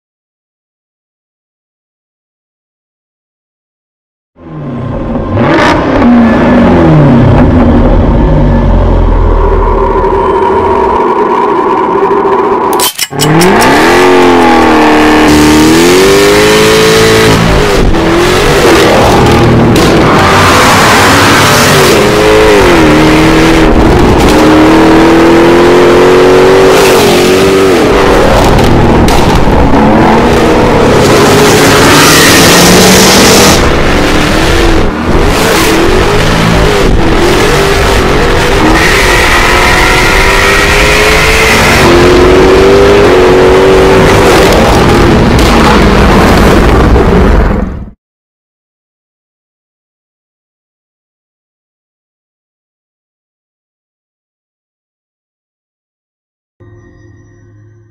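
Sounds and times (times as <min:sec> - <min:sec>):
car engine accelerating hard: 0:04.4 - 0:47.9.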